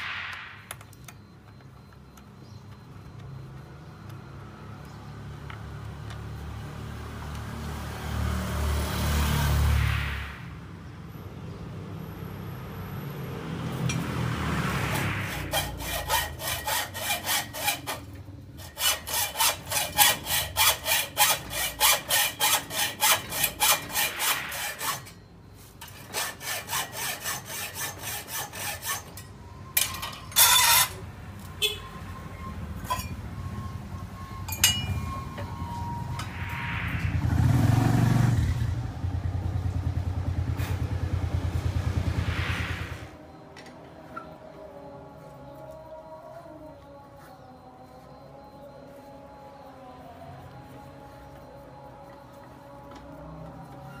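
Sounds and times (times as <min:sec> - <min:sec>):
hacksaw cutting metal pipe: 0:14.9 - 0:31.0, 0:32.8 - 0:33.2, 0:34.6 - 0:35.4
light metallic clinks: 0:34.5 - 0:35.0.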